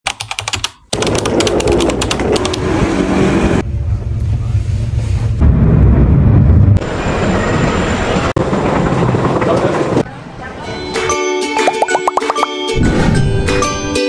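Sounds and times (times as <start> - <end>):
train rumbling from inside carriage: 1.8 - 10.5.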